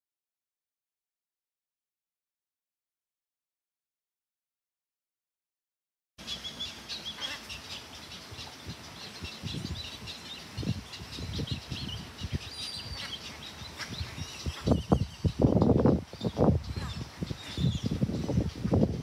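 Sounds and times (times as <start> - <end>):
birds chirping: 6.2 - 19.0.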